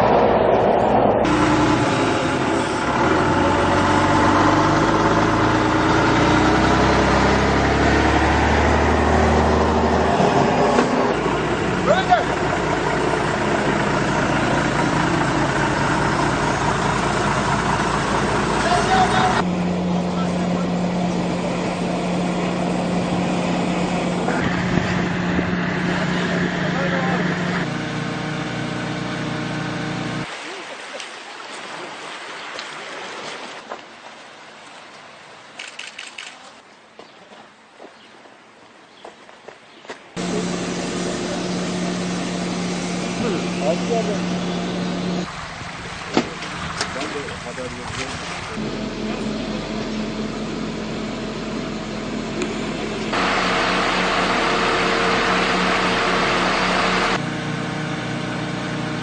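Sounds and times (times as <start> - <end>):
diesel engine humming: 0.0 - 30.3, 40.2 - 59.0
sharp clicks: 35.6 - 36.6.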